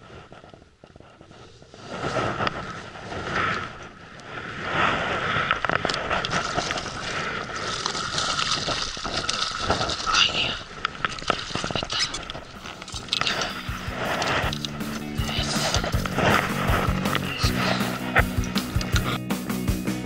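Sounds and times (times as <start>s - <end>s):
wind on microphone: 0.0s - 19.2s
water against boat hull: 5.7s - 19.2s
steady tone: 12.5s - 19.2s.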